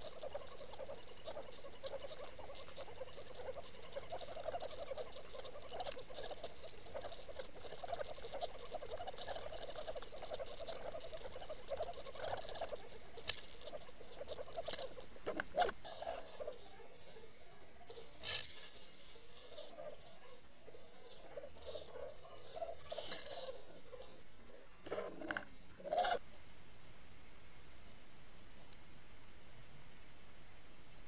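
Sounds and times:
rapid underwater fluttering: 0.0s - 17.1s.

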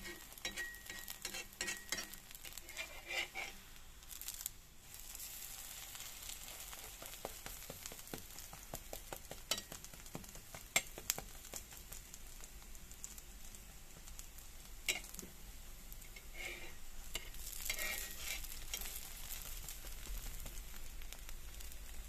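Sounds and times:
metal spatula clicking on pan: 0.0s - 2.8s, 9.2s - 11.6s
pancake sizzling on griddle: 0.0s - 22.0s.

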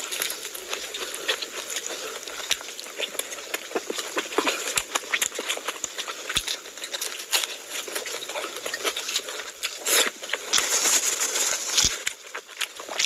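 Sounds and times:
chewing and mouth smacks: 0.0s - 13.0s.

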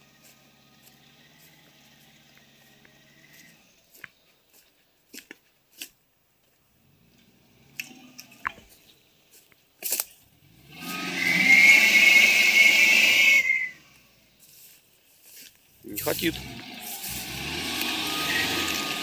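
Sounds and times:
water spraying and splashing: 16.8s - 19.0s.

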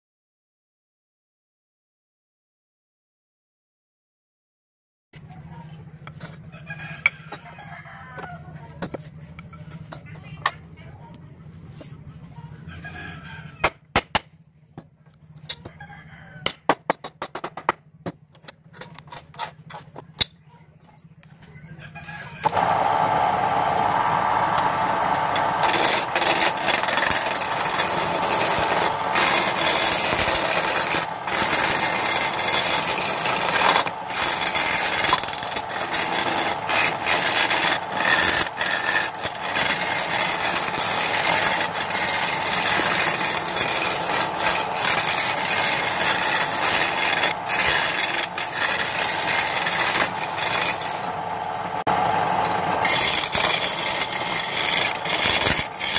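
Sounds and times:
gouge scraping spinning wood: 22.2s - 55.9s.

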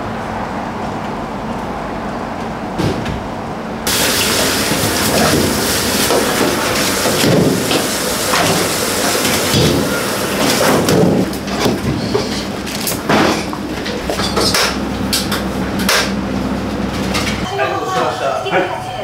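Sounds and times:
kitchen tap running: 3.9s - 12.7s
trays and utensils knocking: 4.0s - 16.2s.

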